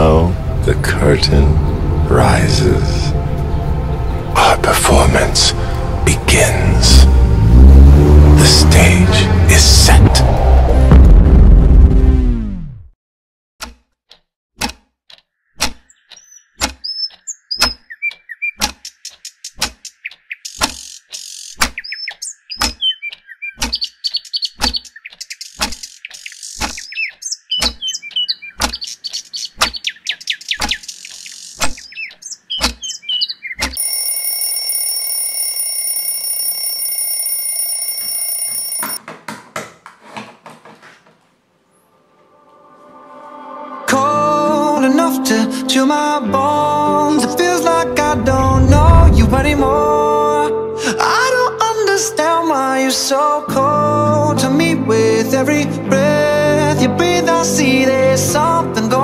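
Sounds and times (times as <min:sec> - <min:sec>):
clock ticking: 0:13.6 - 0:20.8
birds chirping: 0:15.2 - 0:33.9
electronic alarm ringing: 0:33.8 - 0:39.0.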